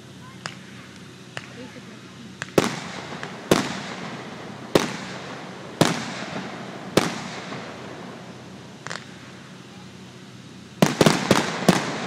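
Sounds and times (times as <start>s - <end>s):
fireworks bangs with rolling echo: 0.3s - 12.0s.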